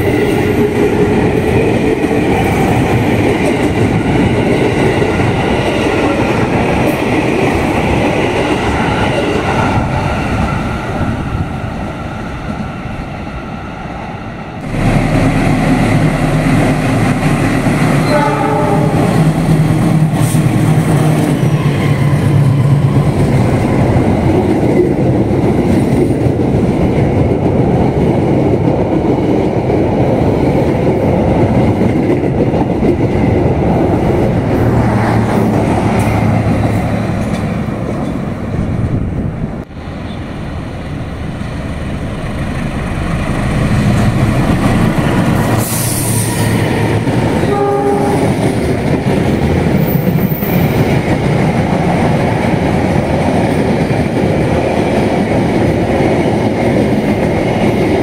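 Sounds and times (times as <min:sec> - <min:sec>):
train wheels rumbling: 0:00.0 - 0:58.0
train horn: 0:18.0 - 0:19.4, 0:47.4 - 0:48.4.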